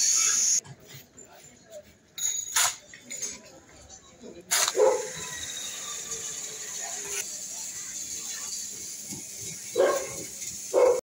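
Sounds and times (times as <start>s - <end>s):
dog barking: 4.7s - 5.2s, 9.7s - 11.0s.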